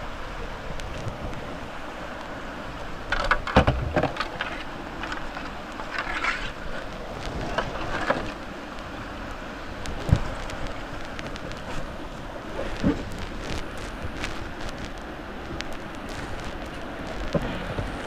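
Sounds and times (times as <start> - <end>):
white-water river rushing: 0.0 - 18.0
kayak knocks and scrapes: 3.1 - 8.4, 9.9 - 14.9, 15.5 - 18.0.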